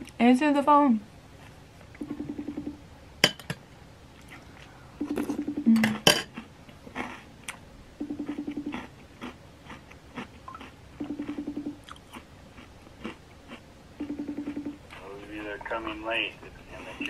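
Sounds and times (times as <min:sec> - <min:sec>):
phone ringing tone: 0:02.0 - 0:02.8, 0:05.0 - 0:06.0, 0:08.0 - 0:08.9, 0:10.5 - 0:11.8, 0:14.0 - 0:14.9.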